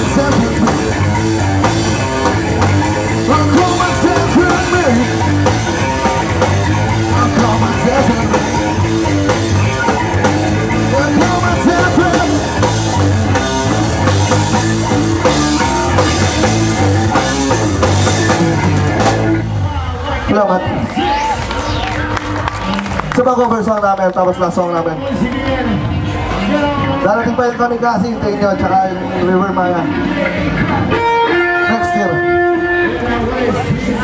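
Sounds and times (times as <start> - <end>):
man singing: 0.0 - 1.3, 3.1 - 5.3, 7.0 - 8.6, 10.8 - 12.7
drum kit: 0.0 - 19.7
bass guitar: 0.0 - 34.0
electric guitars: 0.0 - 34.0.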